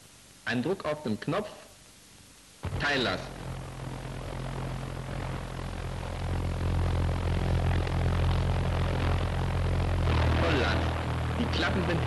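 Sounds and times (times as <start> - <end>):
pulse-jet engine buzzing: 2.6 - 12.0.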